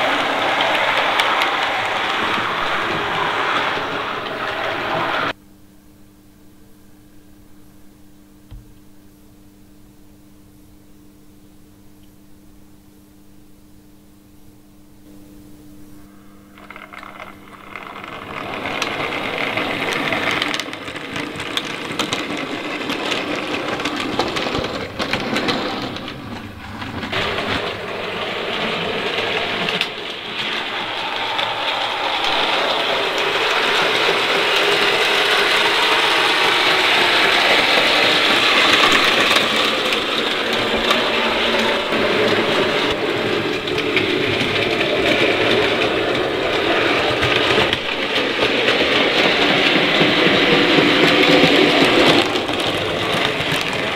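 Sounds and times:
model train motor whirring: 0.0s - 5.3s, 16.5s - 53.9s
wheels clicking on rails: 0.0s - 5.4s, 16.5s - 53.9s.

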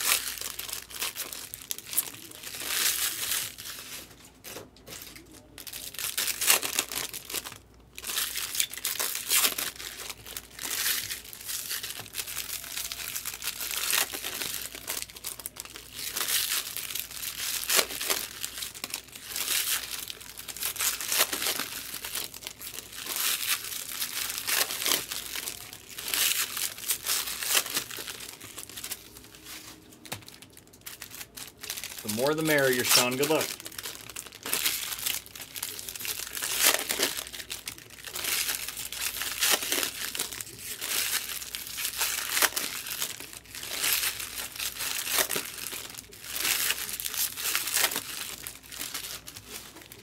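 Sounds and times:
card pack wrappers crinkling and tearing: 0.0s - 50.0s.

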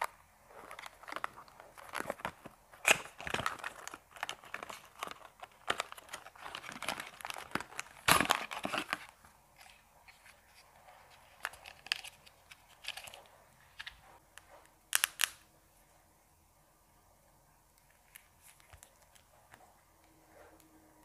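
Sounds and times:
packaging clicks and rustles: 0.0s - 14.0s.

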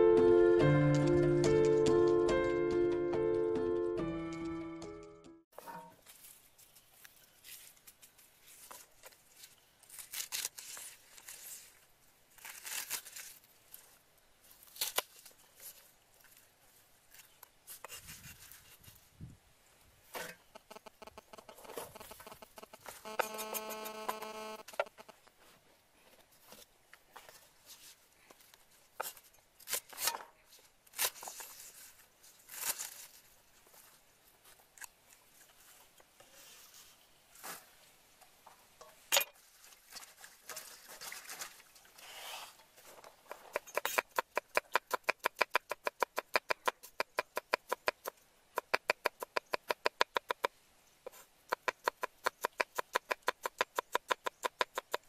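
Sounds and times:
vegetable handling noises: 6.0s - 19.1s, 24.8s - 35.8s.

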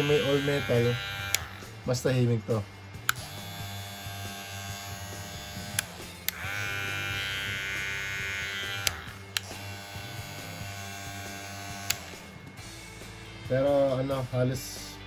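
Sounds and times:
hair clippers buzzing: 0.0s - 1.8s, 3.0s - 12.6s.

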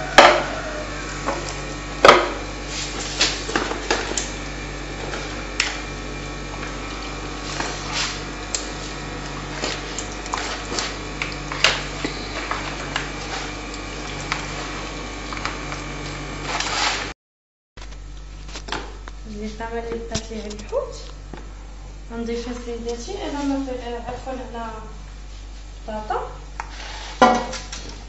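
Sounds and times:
wet squelches of fish in marinade: 5.0s - 14.7s.

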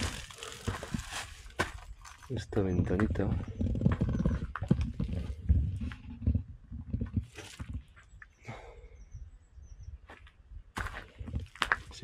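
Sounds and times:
footsteps on rubble and twigs: 0.0s - 6.1s, 10.0s - 12.0s.

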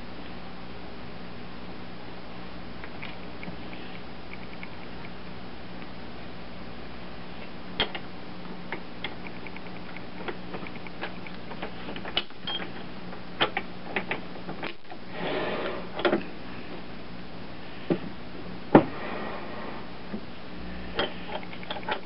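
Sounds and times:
metallic clicks and ticks: 8.7s - 12.6s, 21.0s - 22.0s.

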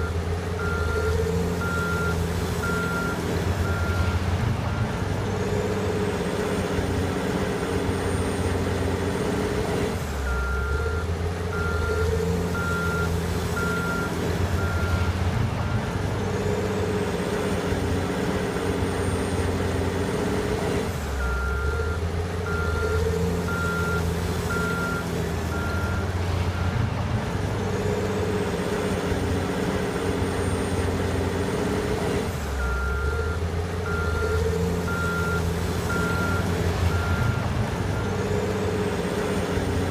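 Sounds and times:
high whine of loader driving: 0.0s - 39.9s
wheel loader diesel engines: 0.0s - 39.9s.

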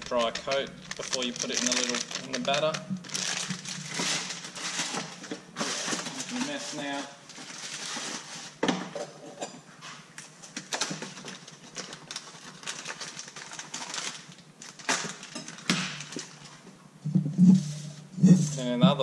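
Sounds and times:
rustling: 0.0s - 8.6s.

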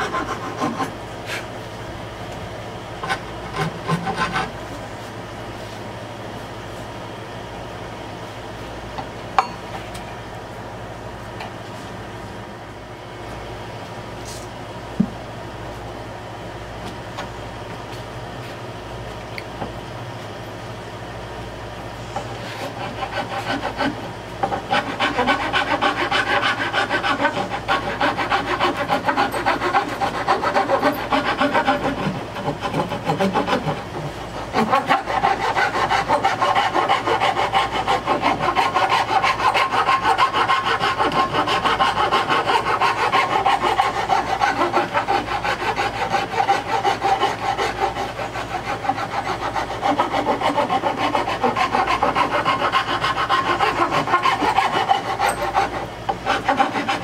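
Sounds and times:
hand file rasping on wood: 0.0s - 1.5s, 3.0s - 4.6s, 22.2s - 57.0s.

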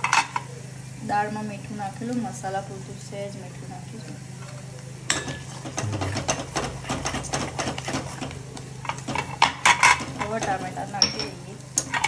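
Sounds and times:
low steady hum: 0.1s - 8.9s.

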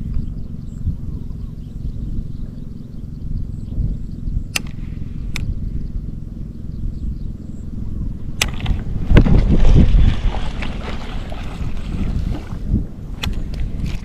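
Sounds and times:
wind rumble on microphone: 0.0s - 14.0s
sharp clicks: 4.5s - 5.5s, 13.2s - 13.7s.

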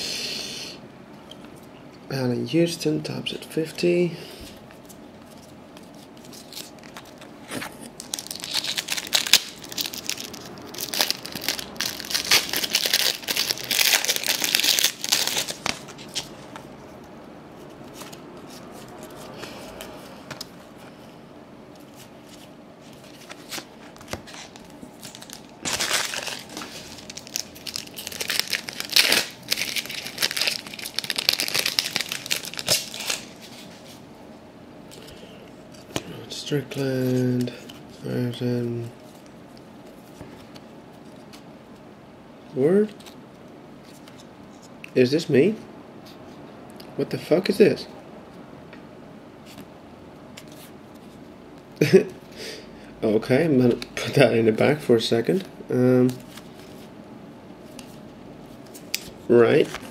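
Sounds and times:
cards being handled: 4.5s - 20.6s, 21.7s - 34.0s
wrapper crinkling and tearing: 6.2s - 16.2s, 23.0s - 33.6s.

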